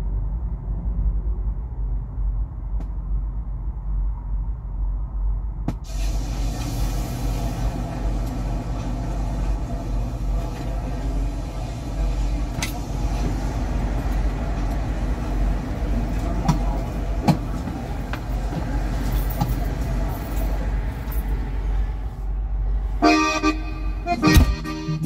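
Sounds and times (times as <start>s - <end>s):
diesel truck engine idling: 5.9s - 25.0s.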